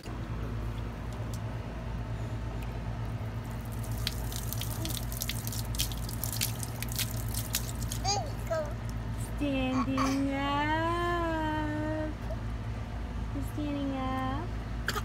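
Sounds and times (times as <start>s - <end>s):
steady low hum: 0.0s - 15.0s
hose water splashing on concrete: 3.4s - 8.3s.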